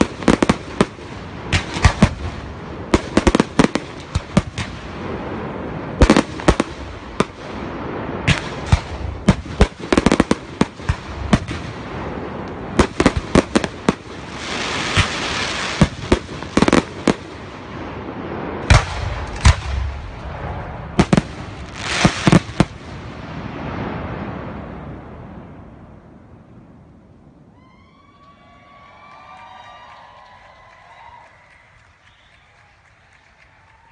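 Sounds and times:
fireworks hiss: 0.0 - 20.4, 21.0 - 24.0
fireworks bangs: 0.0 - 26.8.

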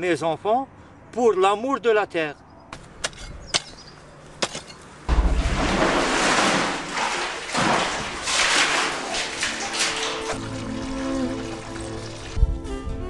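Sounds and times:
water splashing and sloshing: 4.4 - 12.6
bucket hitting water: 5.1 - 12.4.

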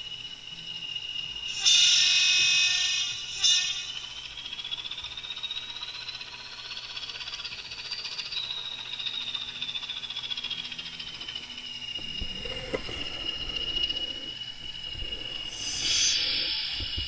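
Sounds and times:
model locomotive whine: 0.0 - 17.0
fast light rattle: 4.0 - 17.0.

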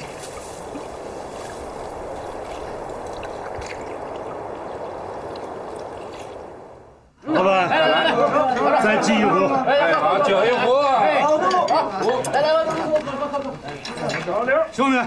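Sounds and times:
lake water lapping: 0.0 - 7.0.

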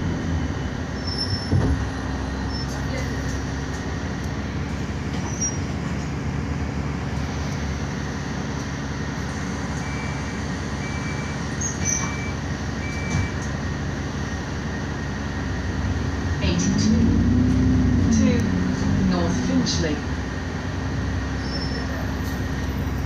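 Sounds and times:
road and body noise: 0.0 - 10.8
bus engine drone: 0.0 - 23.0.

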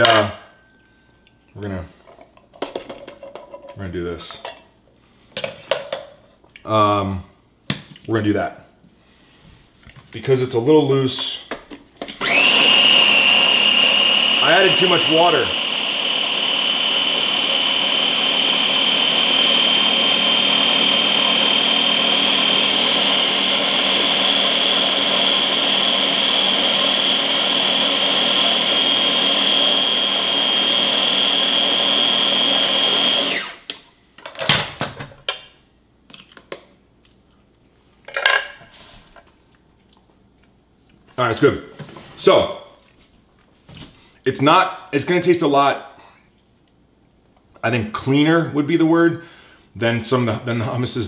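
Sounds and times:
blender whining: 12.2 - 33.8.

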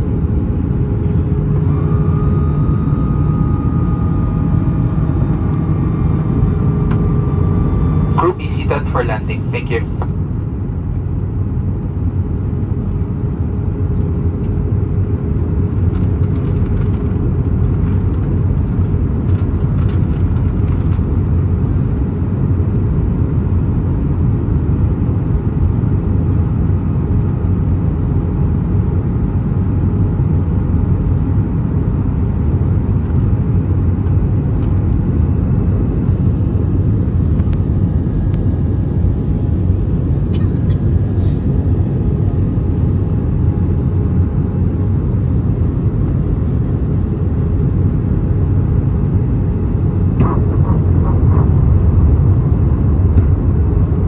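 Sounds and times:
airliner engine hum: 0.0 - 54.0
faint steady whine: 0.0 - 54.0.

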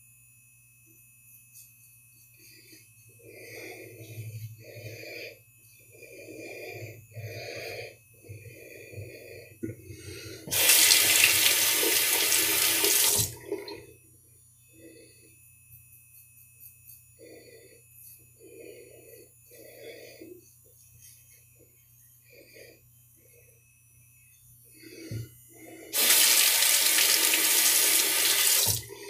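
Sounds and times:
tap running into sink: 10.5 - 13.8, 26.0 - 28.8.

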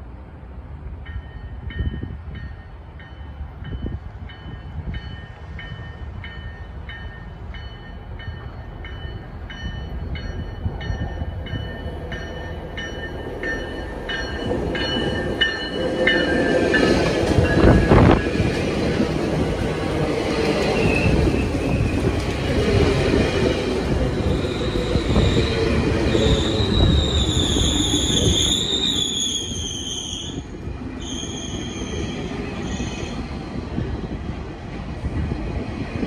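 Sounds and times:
train wheels rumbling: 0.0 - 36.0
train bell ringing: 1.0 - 18.6.

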